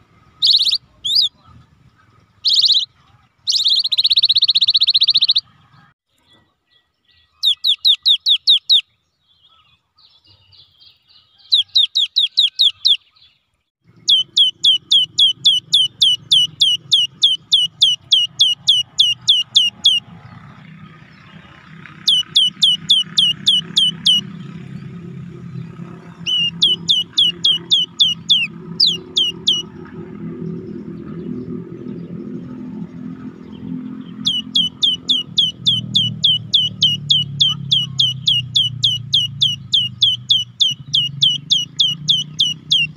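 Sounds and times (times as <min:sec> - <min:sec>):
bird singing whistled notes: 0:00.2 - 0:01.4, 0:02.4 - 0:05.5, 0:06.3 - 0:20.1, 0:22.0 - 0:24.3, 0:26.2 - 0:29.8, 0:30.9 - 0:42.9
low engine rumble: 0:13.8 - 0:42.9.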